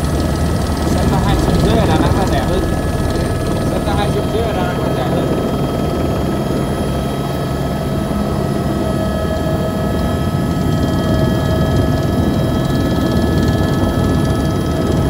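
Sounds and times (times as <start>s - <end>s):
whining tones: 0.0s - 9.2s
helicopter rotor and engine rumble: 0.0s - 15.0s.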